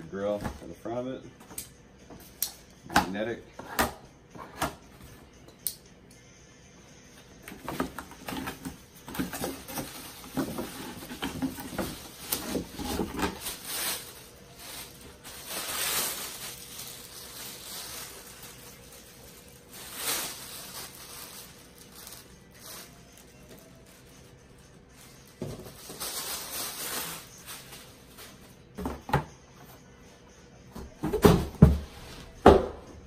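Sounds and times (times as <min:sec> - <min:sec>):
plastic bag crinkling: 0:08.4 - 0:28.5.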